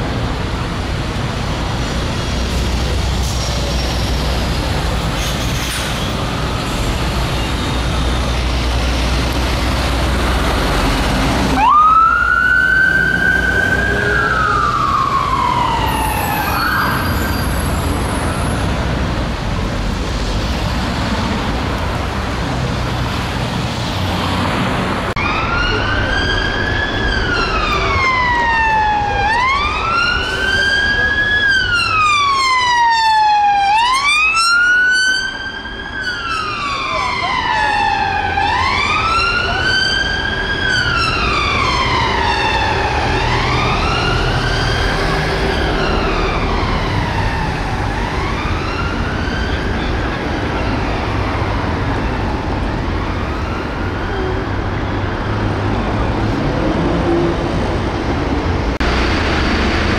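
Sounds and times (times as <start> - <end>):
road traffic: 0.0 - 59.9
police siren wailing: 10.5 - 18.5, 25.2 - 55.3.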